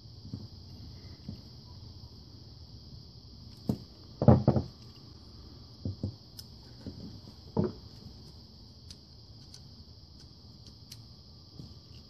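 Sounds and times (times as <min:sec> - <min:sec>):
steady high hiss: 0:00.0 - 0:12.0
tools knocking and clattering: 0:03.7 - 0:05.0.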